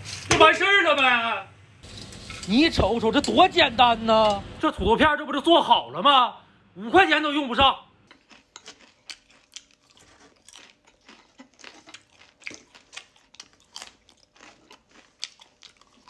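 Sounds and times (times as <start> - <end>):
person chewing crisps: 8.1 - 16.0.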